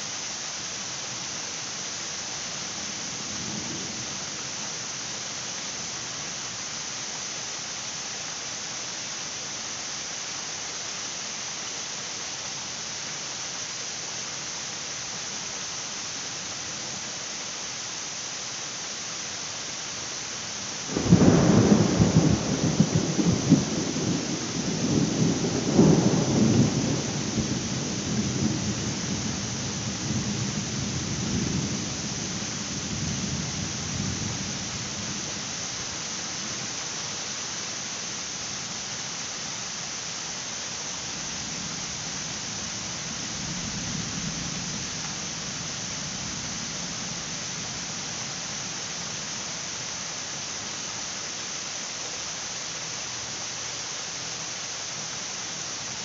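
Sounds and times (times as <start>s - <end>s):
heavy rain hissing: 0.0s - 56.0s
thunder rumbling: 20.9s - 35.2s.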